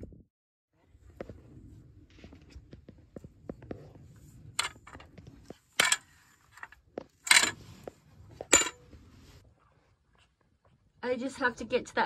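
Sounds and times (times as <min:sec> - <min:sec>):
faint shuffling on dirt: 0:00.8 - 0:11.0
metal pole clinking and scraping: 0:05.7 - 0:09.0.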